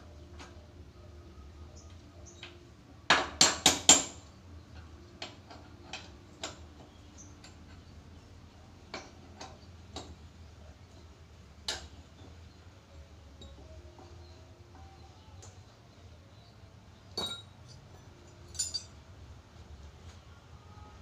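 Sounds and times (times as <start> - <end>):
hand tools clinking on metal: 17.2 - 19.0.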